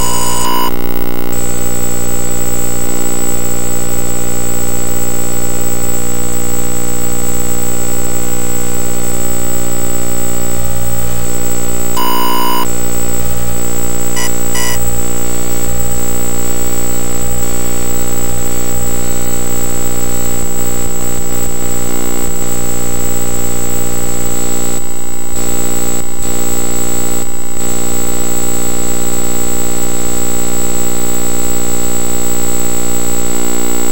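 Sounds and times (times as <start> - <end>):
thin high whine: 0.0 - 1.4, 12.0 - 12.9, 14.1 - 15.0
harsh buzzing electronic drone: 0.0 - 3.2, 12.0 - 18.6.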